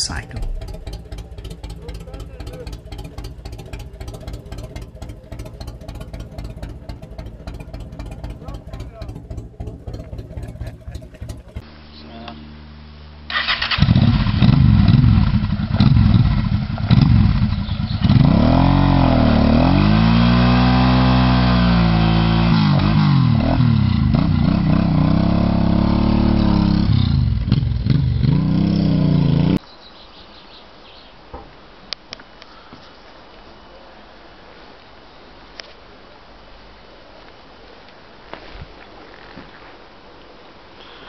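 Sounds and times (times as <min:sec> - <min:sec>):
motorcycle engine revving: 0:00.0 - 0:11.7, 0:13.3 - 0:29.6.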